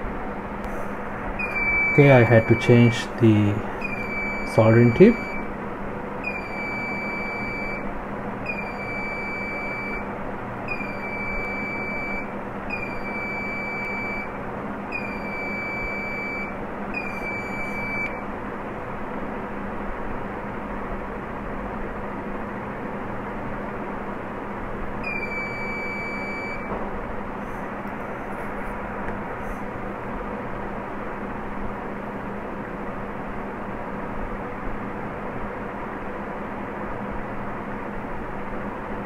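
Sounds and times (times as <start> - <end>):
background hum: 0.0 - 39.0
electronic beeper long beeps: 1.4 - 3.1, 3.8 - 5.5, 6.2 - 7.9, 8.5 - 10.1, 10.7 - 18.2, 25.0 - 26.7.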